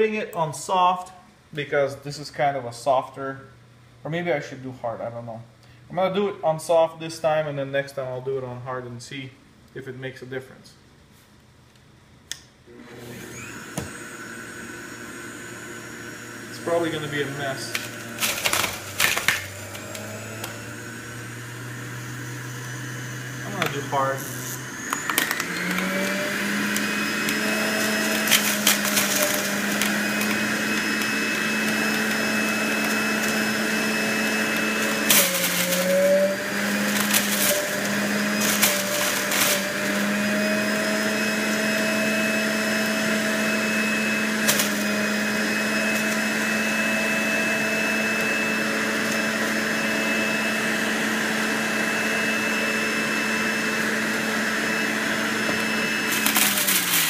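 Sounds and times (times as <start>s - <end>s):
juicer motor running: 12.7s - 57.0s.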